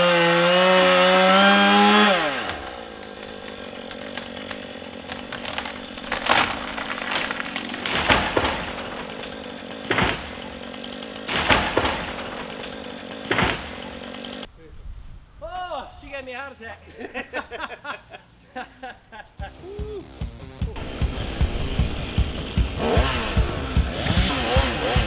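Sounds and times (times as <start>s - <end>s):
chainsaw cutting wood: 0.0s - 14.5s, 20.4s - 25.0s.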